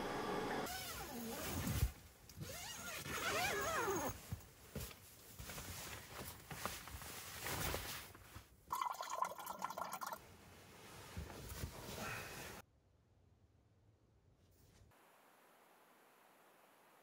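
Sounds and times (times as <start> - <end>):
zip being pulled: 0.7 - 4.2
sleeping bag rustling: 0.7 - 8.6.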